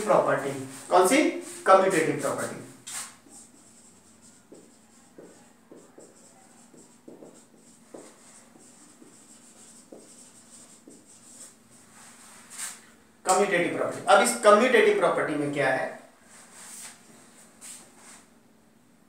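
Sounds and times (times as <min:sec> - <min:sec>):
marker writing on whiteboard: 0:00.0 - 0:13.5.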